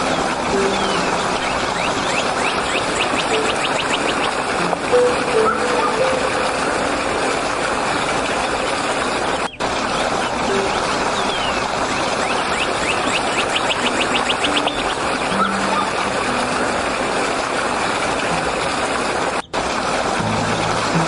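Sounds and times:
stream rushing over rocks: 0:00.0 - 0:21.0
high bird chirps: 0:00.6 - 0:06.5, 0:09.4 - 0:16.0.

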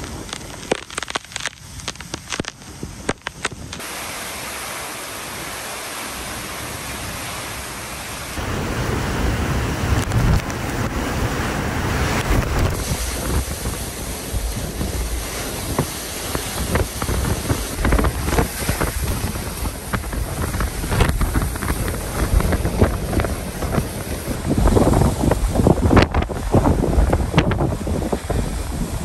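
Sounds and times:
waves breaking against wall: 0:06.1 - 0:28.9
wind buffeting microphone: 0:08.4 - 0:29.0.

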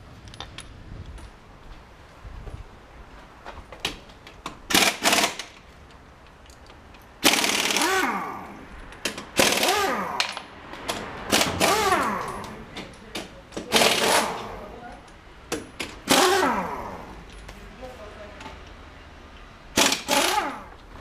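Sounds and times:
pneumatic impact wrench hammering: 0:04.4 - 0:05.6, 0:07.2 - 0:14.7, 0:15.5 - 0:17.2, 0:19.7 - 0:20.8.

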